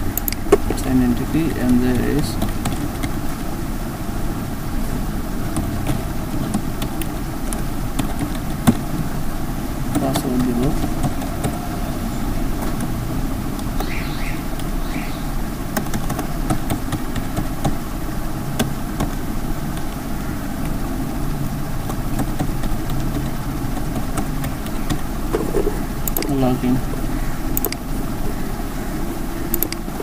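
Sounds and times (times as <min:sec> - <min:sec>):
low background rumble: 0:00.0 - 0:30.0
keyboard keys clicking: 0:00.1 - 0:03.2, 0:05.5 - 0:08.9, 0:09.9 - 0:11.7, 0:15.7 - 0:17.8, 0:18.6 - 0:20.0, 0:21.8 - 0:26.8, 0:27.5 - 0:27.9, 0:29.5 - 0:30.0.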